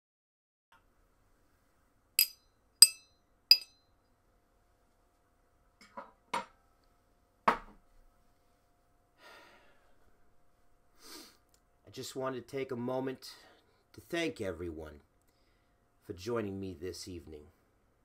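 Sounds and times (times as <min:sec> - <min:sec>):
utensil clinking a glass: 0:02.2 - 0:03.7.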